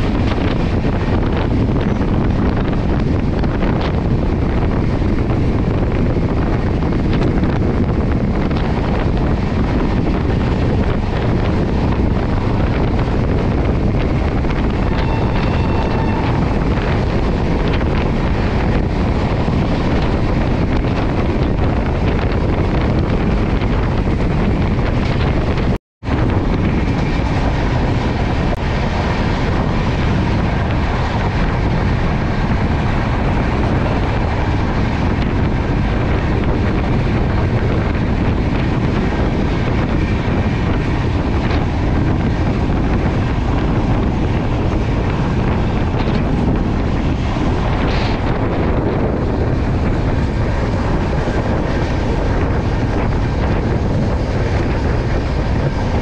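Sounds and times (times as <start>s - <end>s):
train rumbling on track: 0.0s - 56.0s
wind buffeting microphone: 0.0s - 56.0s.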